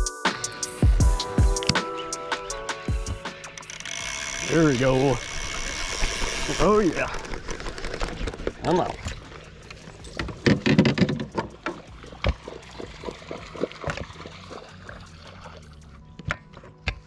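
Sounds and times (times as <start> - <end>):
fishing rod knocking against boat: 10.1 - 14.1.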